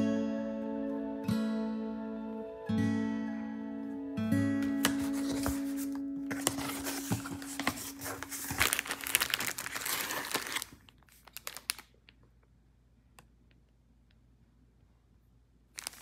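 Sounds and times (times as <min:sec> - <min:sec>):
plastic packaging crinkling: 0:04.8 - 0:12.2, 0:15.7 - 0:16.0.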